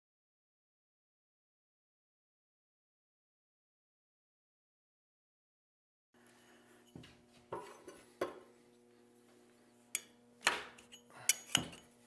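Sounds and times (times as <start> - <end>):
faint steady hum: 6.2 - 12.0.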